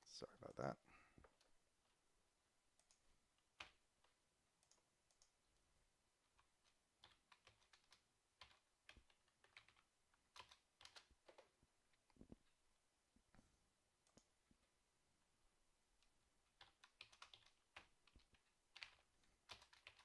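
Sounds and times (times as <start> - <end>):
typing on computer keyboard: 2.8 - 5.4, 6.3 - 12.2, 16.5 - 20.0.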